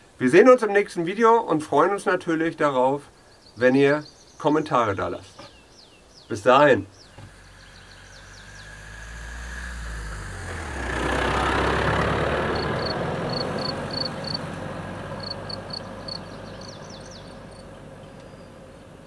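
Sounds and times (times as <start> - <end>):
small birds chirping: 2.0 - 19.0
pickup truck driving past: 7.3 - 19.0.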